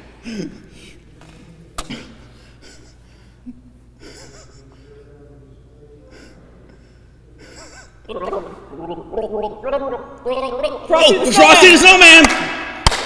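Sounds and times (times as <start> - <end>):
stifled laughter through nose: 2.6 - 4.9, 7.4 - 10.5.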